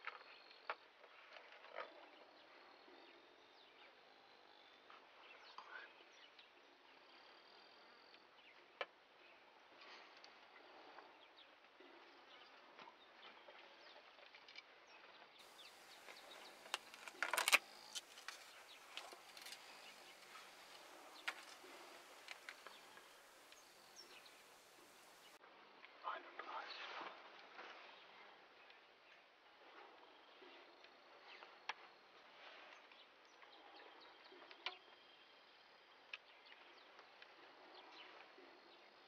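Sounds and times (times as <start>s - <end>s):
insects buzzing: 15.4s - 25.4s.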